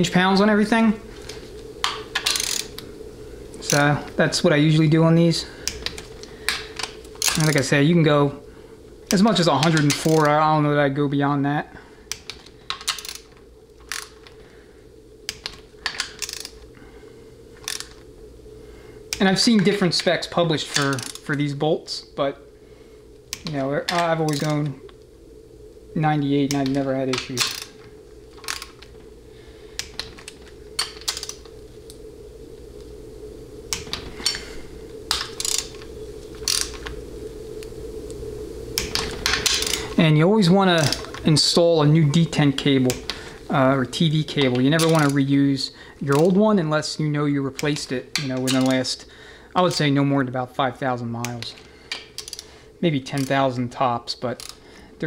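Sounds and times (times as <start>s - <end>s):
steady low hum: 0.0s - 55.0s
metallic clicks of wrench and socket: 2.2s - 2.7s, 52.2s - 52.4s
torque wrench ratchet clicks: 2.2s - 2.8s, 5.6s - 7.7s, 12.1s - 14.2s, 15.3s - 16.6s, 17.6s - 18.0s, 20.7s - 21.4s, 23.3s - 24.7s, 26.5s - 27.7s, 28.4s - 28.8s, 30.8s - 31.4s, 35.1s - 36.9s, 38.8s - 39.9s, 51.9s - 52.5s, 54.4s - 54.6s.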